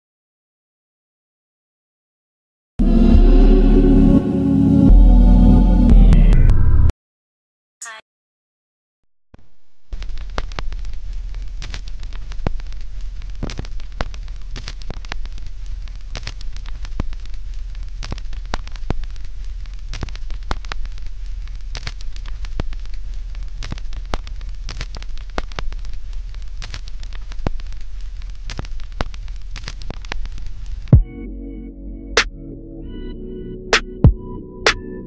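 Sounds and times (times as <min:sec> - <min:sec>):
crackling and popping: 0:09.4 - 0:31.0.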